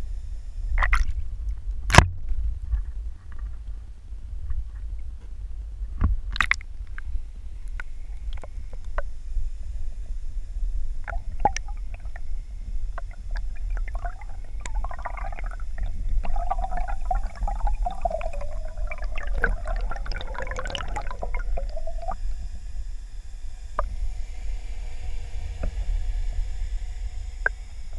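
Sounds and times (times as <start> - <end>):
underwater water rumble: 8.0 - 27.9
water gurgling and bubbling: 11.0 - 22.8.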